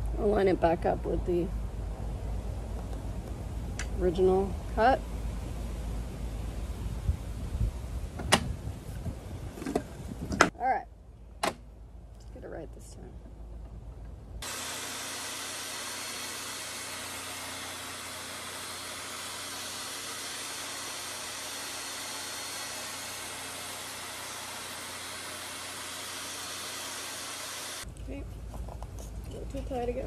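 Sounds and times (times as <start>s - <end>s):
table saw cutting wood: 14.4s - 27.8s.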